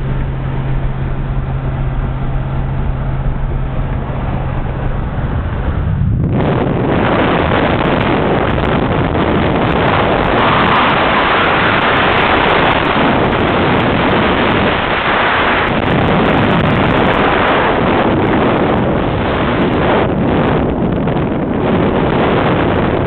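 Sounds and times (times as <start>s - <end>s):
car engine running: 0.0s - 22.6s
wind rushing over microphone: 0.0s - 23.0s.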